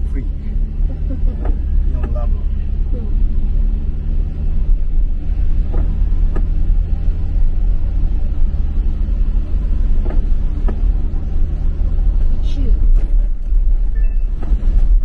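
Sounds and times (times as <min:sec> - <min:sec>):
vehicle rumble on wet road: 0:00.0 - 0:15.0.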